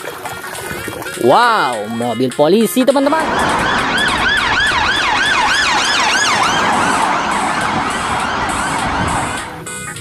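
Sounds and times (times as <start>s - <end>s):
police siren yelping: 3.2s - 9.8s.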